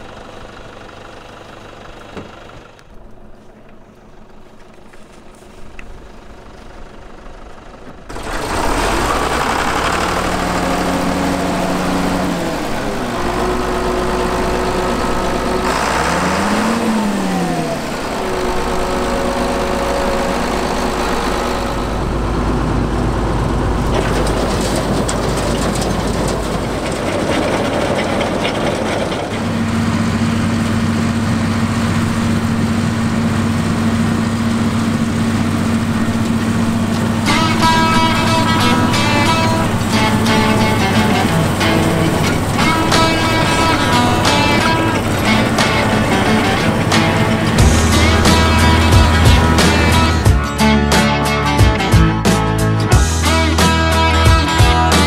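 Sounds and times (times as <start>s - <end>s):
combine harvester droning: 0.0s - 55.0s.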